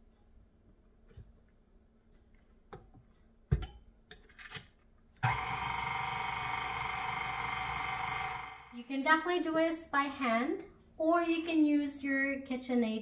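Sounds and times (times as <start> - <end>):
stand mixer motor running: 5.2 - 8.7.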